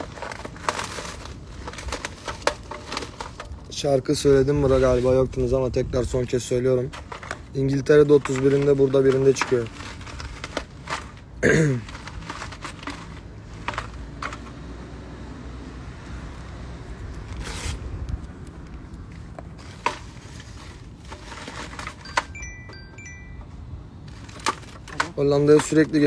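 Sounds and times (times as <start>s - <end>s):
phone handling rustles and clicks: 0.0s - 3.7s, 6.8s - 14.6s, 17.0s - 26.0s.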